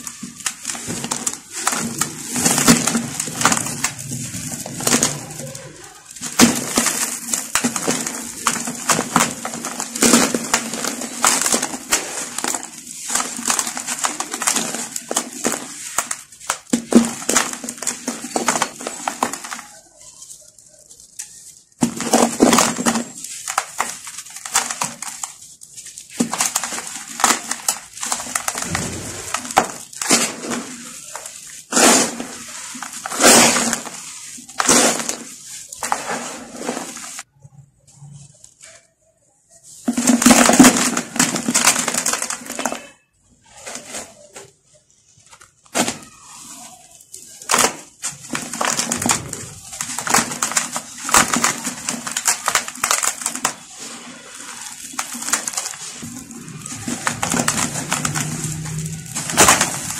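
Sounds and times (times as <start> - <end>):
gritty crunching and crackling: 0.0 - 37.3, 39.8 - 59.9
grit trickling down: 55.8 - 59.9.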